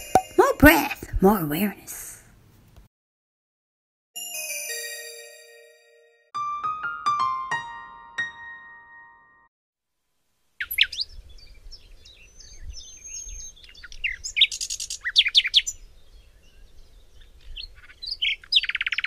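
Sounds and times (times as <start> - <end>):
birds singing: 10.6 - 19.0.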